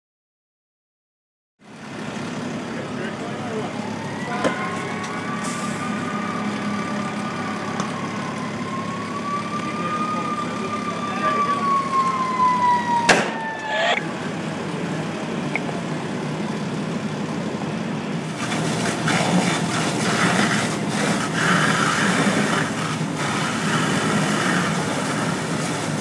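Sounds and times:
fire hose spraying water: 1.8s - 12.8s, 16.0s - 26.0s
fire engine siren winding down: 1.8s - 16.2s, 18.4s - 26.0s
sharp bang: 13.0s - 14.0s.

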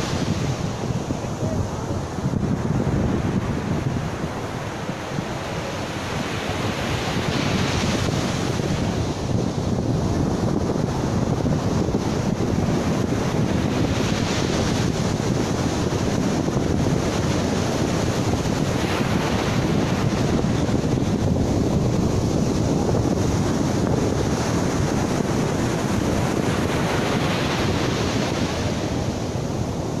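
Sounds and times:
surf breaking on beach: 0.0s - 30.0s
wind buffeting microphone: 0.0s - 30.0s.

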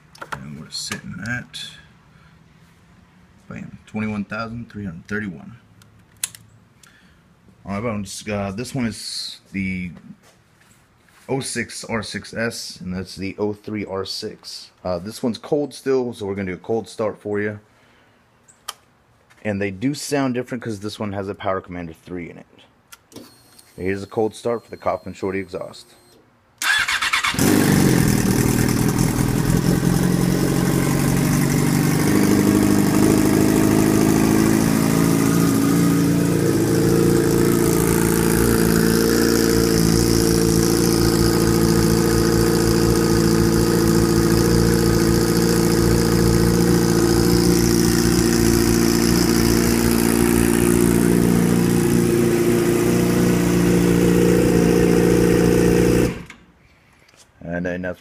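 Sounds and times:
motorcycle engine cranking: 26.6s - 56.5s
motorcycle engine idling: 26.7s - 56.2s.

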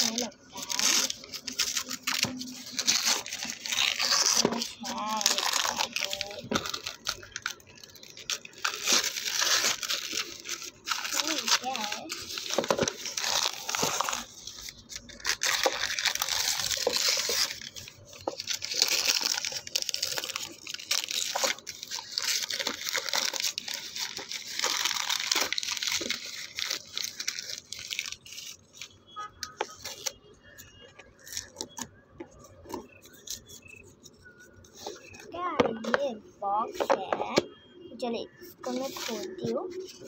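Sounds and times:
paper rustling and tearing: 0.0s - 36.2s, 38.3s - 40.0s
soft paper crinkles: 0.0s - 40.0s.

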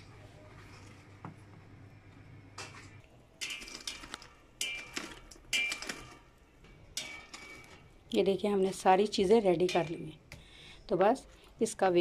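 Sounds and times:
metal tongs clinking on charcoal: 3.4s - 6.2s, 7.0s - 8.3s, 9.6s - 10.2s.

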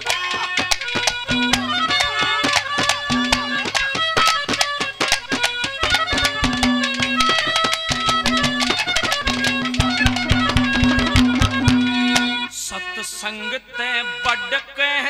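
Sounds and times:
fast hand-drum strokes: 0.0s - 12.5s
sustained melody line: 1.0s - 12.5s.

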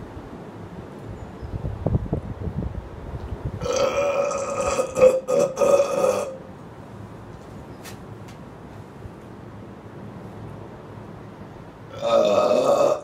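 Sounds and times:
man burping: 3.6s - 6.4s, 11.9s - 13.0s.

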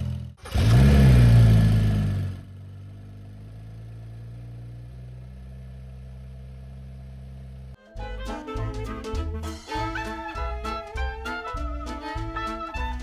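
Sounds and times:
car engine revving: 0.0s - 7.8s.

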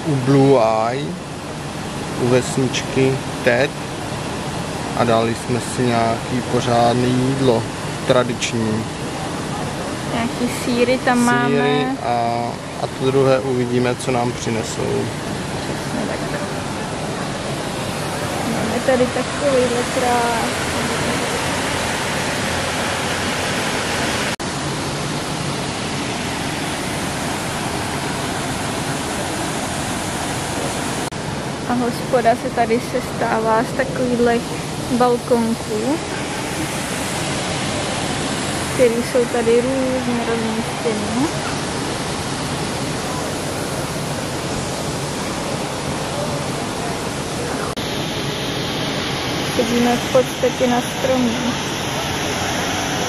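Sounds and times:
waterfall rushing: 0.0s - 53.0s.

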